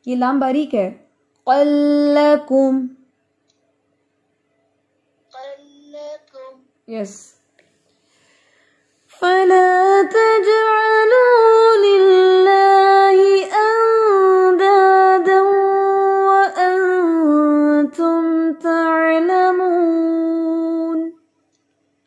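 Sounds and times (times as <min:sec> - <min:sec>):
woman chanting recitation: 0:09.1 - 0:21.2.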